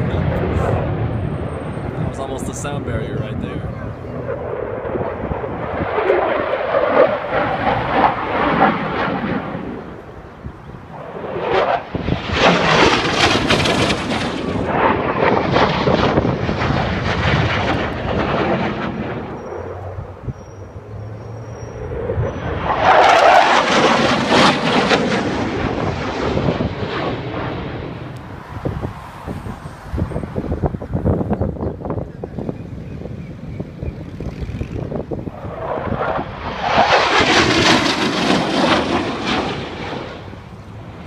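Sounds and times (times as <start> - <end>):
fighter jets flying past: 0.0 - 41.0.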